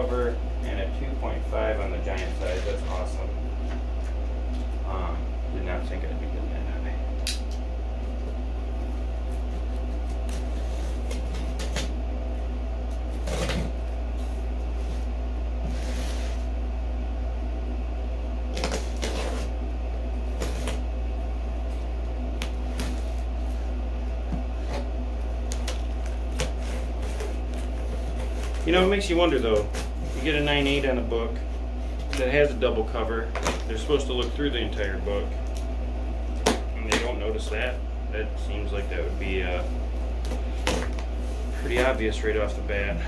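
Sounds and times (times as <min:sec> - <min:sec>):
steady low hum: 0:00.0 - 0:43.0
cardboard flaps scraping and clicking: 0:13.1 - 0:13.8, 0:18.5 - 0:19.5
knife slicing packing tape: 0:18.5 - 0:19.5.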